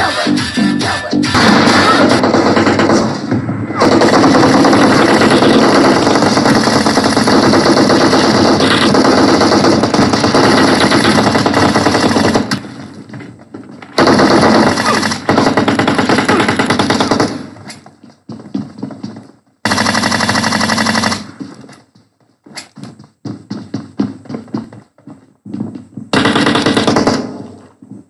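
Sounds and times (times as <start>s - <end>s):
video game automatic gunfire: 1.3s - 12.8s, 14.0s - 17.6s, 19.6s - 21.4s, 26.1s - 27.6s.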